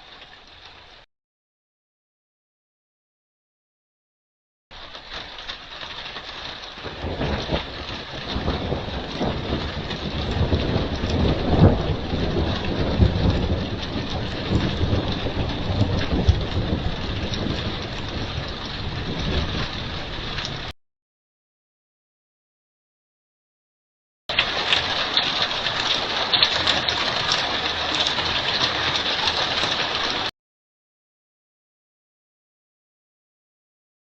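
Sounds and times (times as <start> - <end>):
heavy rain falling: 0.0 - 1.0, 4.7 - 20.8, 24.3 - 30.3
thunder rumbling: 4.8 - 20.7, 24.3 - 30.3.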